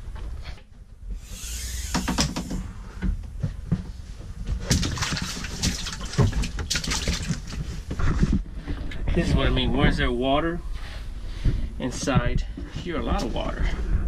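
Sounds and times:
footsteps splashing in shallow water: 4.6s - 7.9s.

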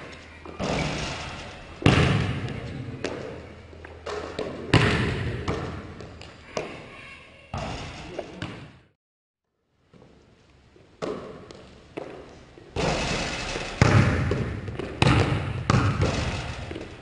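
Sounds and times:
basketball bouncing on hardwood floor: 0.6s - 3.3s, 4.0s - 6.7s, 12.8s - 17.0s.

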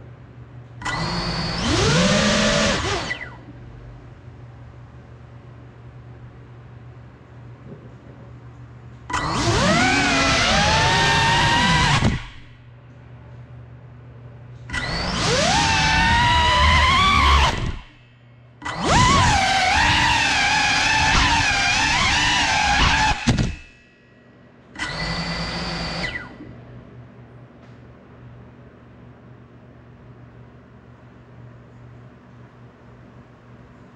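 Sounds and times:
drone motors and propellers whining: 0.8s - 3.5s, 9.1s - 12.6s, 14.7s - 18.0s, 18.6s - 23.7s, 24.8s - 26.5s.

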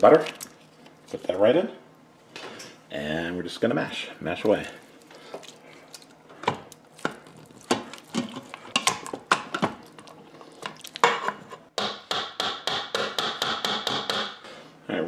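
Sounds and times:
potato masher knocking on metal pot: 11.8s - 14.4s.

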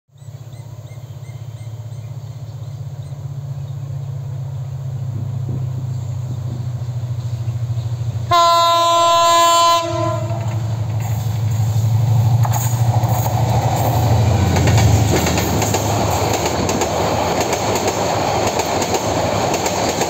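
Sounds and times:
locomotive engine throb: 0.6s - 20.0s
locomotive air horn blast: 8.3s - 11.4s.

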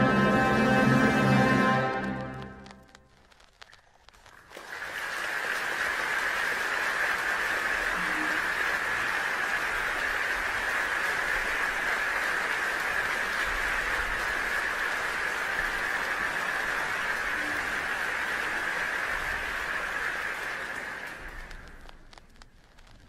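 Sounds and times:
faint clicks: 2.0s - 4.6s, 21.0s - 23.0s
steady hiss: 2.2s - 23.0s.

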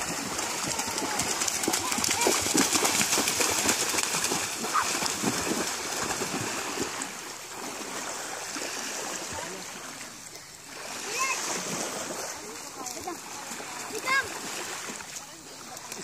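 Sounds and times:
people splashing in shallow water: 0.0s - 16.0s
small waves washing on shore: 0.0s - 16.0s.

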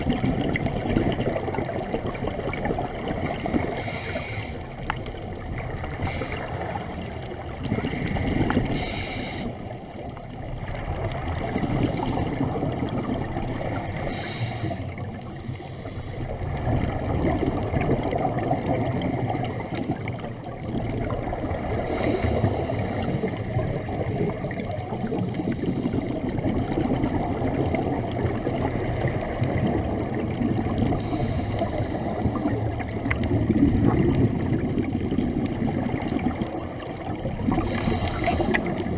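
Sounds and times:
muffled water rush: 0.0s - 38.9s
regulator breathing hiss: 3.2s - 4.8s, 6.0s - 9.7s, 13.5s - 16.3s, 21.9s - 23.5s, 31.0s - 32.5s, 37.6s - 38.7s.

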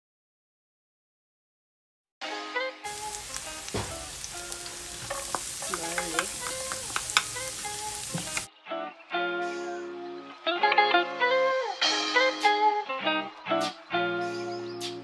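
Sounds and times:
background music: 2.2s - 15.0s
onions and garlic sizzling in oil: 2.9s - 8.5s.

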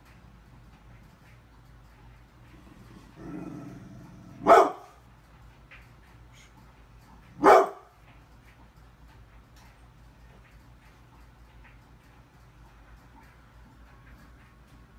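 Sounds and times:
dog growling: 2.5s - 4.7s
dog barking deeply: 3.1s - 5.0s, 7.4s - 7.9s.

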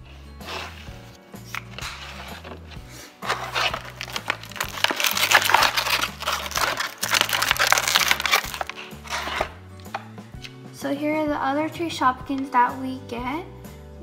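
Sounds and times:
background music: 0.0s - 14.0s
plastic bag crinkling: 1.5s - 9.5s.

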